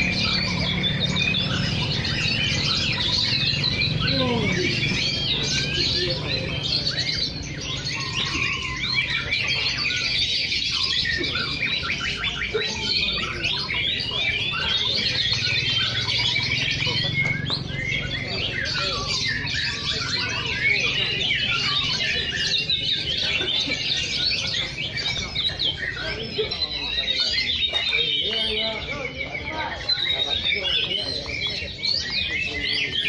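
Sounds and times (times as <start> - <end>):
birds whistling and chirping: 0.0 - 33.0.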